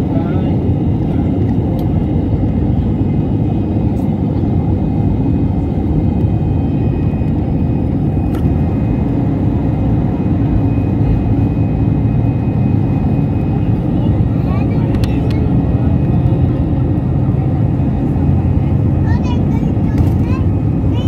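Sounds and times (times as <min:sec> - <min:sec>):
jet engines roaring: 0:00.0 - 0:21.0
runway rumble: 0:07.2 - 0:21.0.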